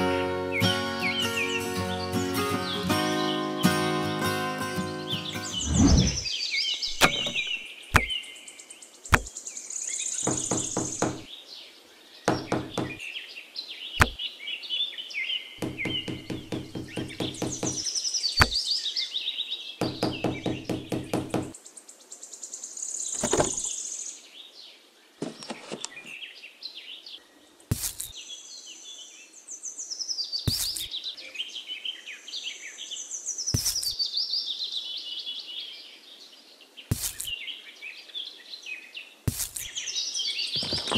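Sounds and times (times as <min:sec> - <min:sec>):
birds chirping: 0:00.0 - 0:14.6, 0:15.4 - 0:21.6, 0:22.6 - 0:24.2, 0:30.0 - 0:32.2, 0:33.4 - 0:34.2, 0:36.1 - 0:40.9
wooden sticks knocking: 0:06.9 - 0:08.1, 0:09.1 - 0:09.3, 0:10.3 - 0:11.3, 0:12.3 - 0:13.0, 0:15.6 - 0:17.8, 0:19.8 - 0:21.5.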